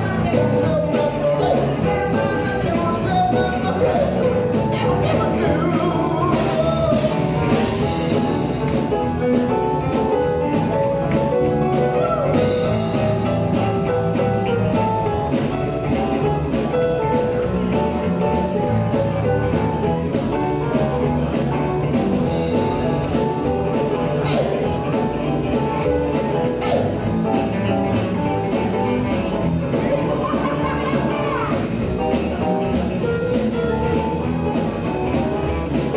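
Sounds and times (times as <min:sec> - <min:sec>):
bass guitar: 0:00.0 - 0:35.9
drum kit beat: 0:00.0 - 0:35.9
electric guitar: 0:00.0 - 0:35.9
keyboards: 0:00.0 - 0:35.9.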